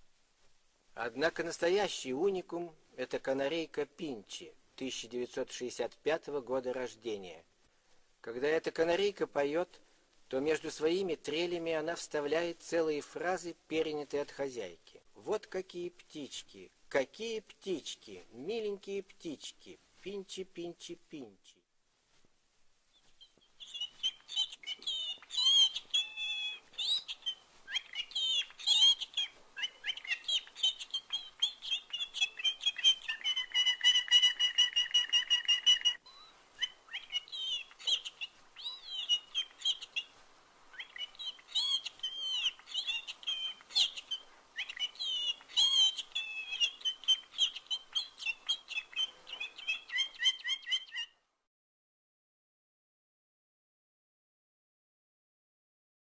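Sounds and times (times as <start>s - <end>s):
canary singing: 22.9s - 51.2s.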